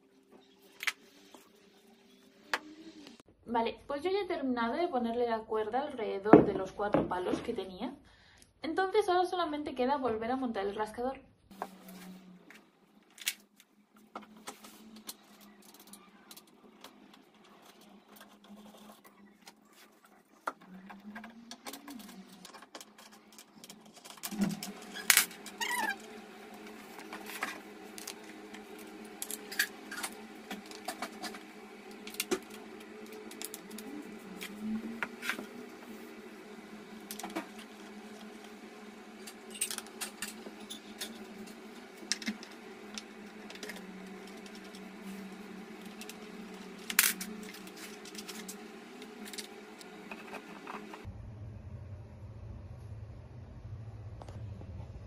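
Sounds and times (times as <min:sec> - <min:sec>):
steady low hum: 0:23.2 - 0:55.0.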